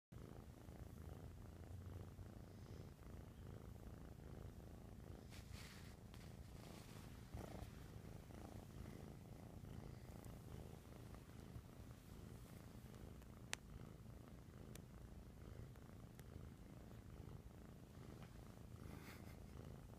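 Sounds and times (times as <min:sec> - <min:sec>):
kitten purring: 0:00.1 - 0:19.9
soft brushing: 0:05.1 - 0:13.2.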